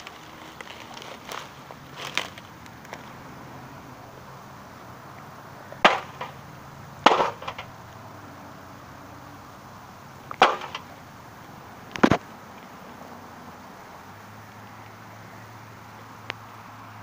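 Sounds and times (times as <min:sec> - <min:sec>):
stick striking a box: 0:05.8 - 0:06.4, 0:07.0 - 0:07.7, 0:10.4 - 0:10.8.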